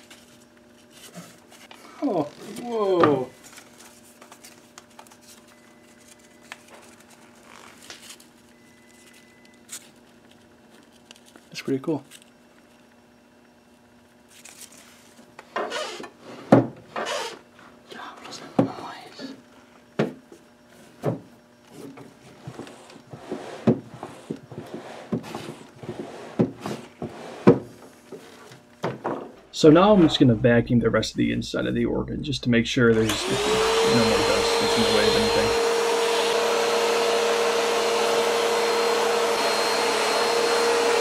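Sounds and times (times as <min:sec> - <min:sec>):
paper rustling and crackling: 0:03.4 - 0:12.3, 0:14.3 - 0:15.3
low steady hum: 0:25.8 - 0:35.6.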